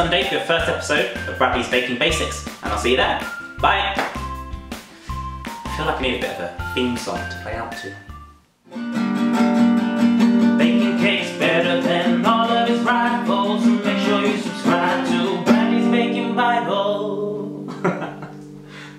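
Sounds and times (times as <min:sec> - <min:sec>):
acoustic guitar strumming: 0:00.0 - 0:18.9
man singing: 0:10.6 - 0:17.7.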